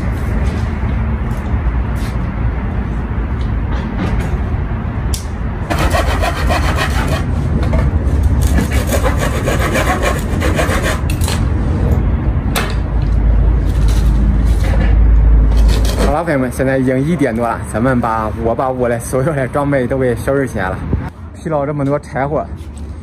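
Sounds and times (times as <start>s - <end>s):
hand saw cutting wood: 5.7s - 7.3s, 8.4s - 11.4s.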